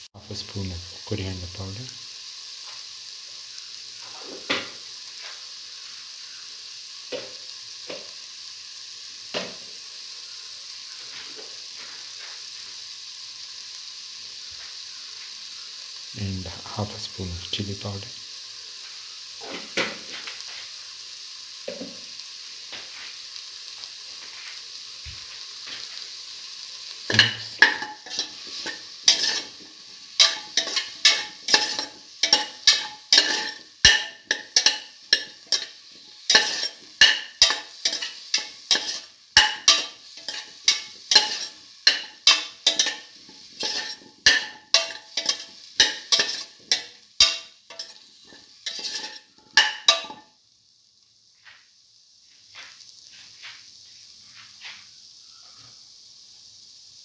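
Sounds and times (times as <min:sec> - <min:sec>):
food sizzling in a pot: 0:00.0 - 0:57.0
spoon scraping a pot: 0:27.1 - 0:29.6, 0:30.2 - 0:50.2.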